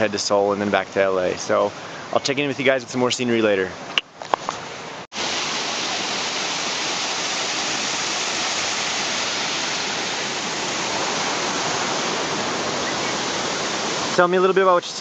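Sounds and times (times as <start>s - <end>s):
waterfall rushing into a pool: 5.1s - 15.0s.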